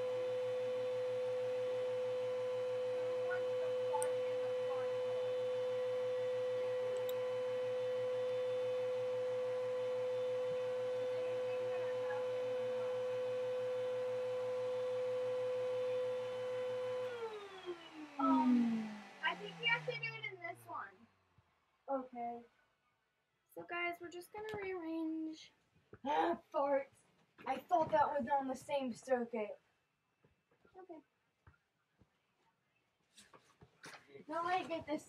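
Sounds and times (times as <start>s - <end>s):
vacuum cleaner motor whining: 0.0s - 20.8s.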